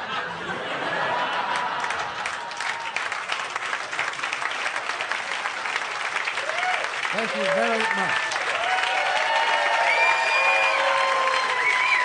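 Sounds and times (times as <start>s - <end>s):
audience laughing: 0.0s - 2.8s
audience applauding: 0.8s - 12.0s.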